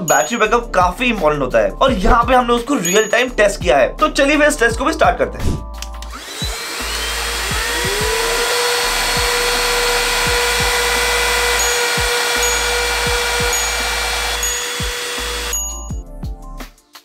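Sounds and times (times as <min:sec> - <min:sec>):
vacuum cleaner motors whining: 0:06.0 - 0:15.8.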